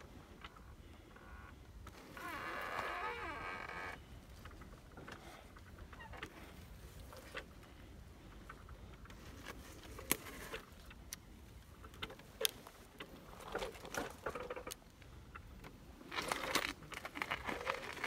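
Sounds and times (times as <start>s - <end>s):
bramble stems rustling and scraping: 8.4s - 11.1s, 11.8s - 14.8s, 16.0s - 18.0s.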